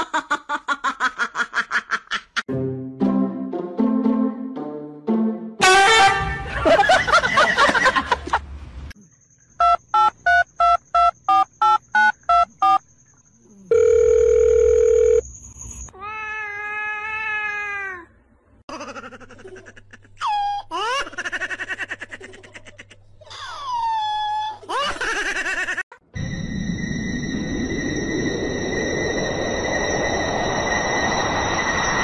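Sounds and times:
steady electronic tone: 0:26.2 - 0:32.0.

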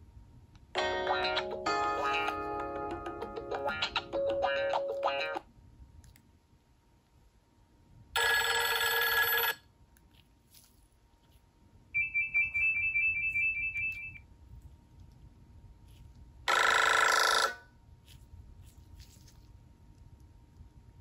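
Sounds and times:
phone ringtones playing: 0:08.2 - 0:09.6, 0:12.0 - 0:14.2, 0:16.5 - 0:17.6.

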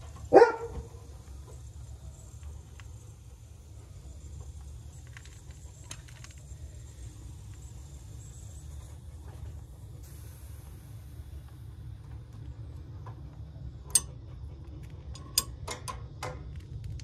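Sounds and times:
low background rumble: 0:00.0 - 0:17.0
small metal parts clicking: 0:04.4 - 0:06.8, 0:14.8 - 0:17.0.

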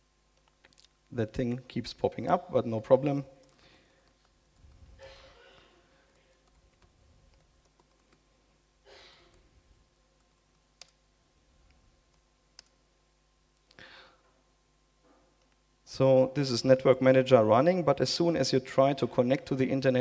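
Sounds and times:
computer keyboard typing: 0:06.2 - 0:08.2
breath into microphone: 0:13.8 - 0:14.3.

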